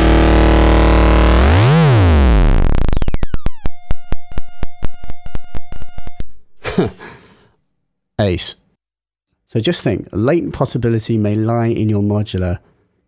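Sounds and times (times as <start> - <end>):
metallic synthesizer drone: 0.0 - 5.5
rhythmic synth drum hits: 0.0 - 6.5.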